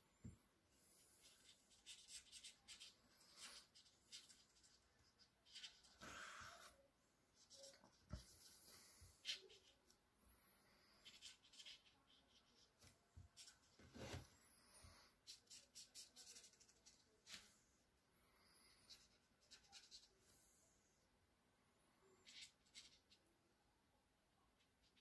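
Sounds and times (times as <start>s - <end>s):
felt-tip pen scratching paper: 1.2s - 6.7s, 11.0s - 12.7s.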